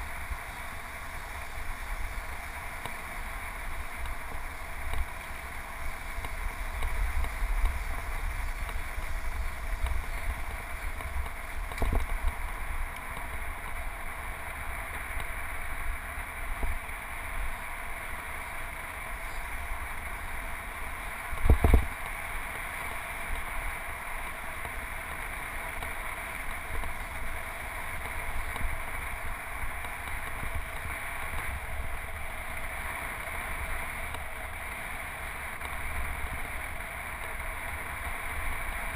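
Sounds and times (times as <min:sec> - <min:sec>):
wind and road noise: 0:00.0 - 0:38.9.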